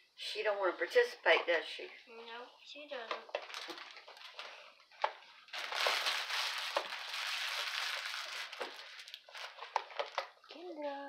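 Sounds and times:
plastic packaging crinkling: 3.3s - 10.5s.

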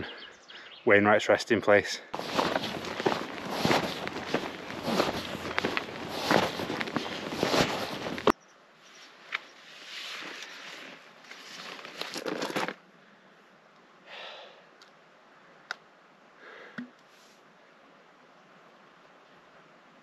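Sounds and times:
backpack fabric rustling: 2.2s - 8.3s, 10.0s - 12.8s.

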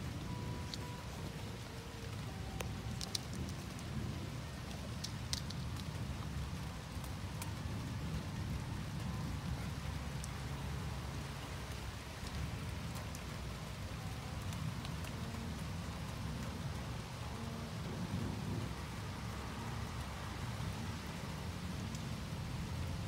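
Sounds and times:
steady rain: 0.0s - 23.0s
thunder rumble: 0.0s - 23.0s
drops ticking: 2.1s - 3.9s.

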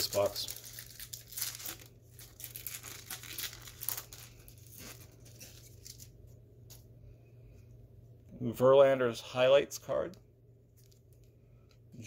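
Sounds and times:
foil wrapper crinkling: 0.0s - 6.8s.

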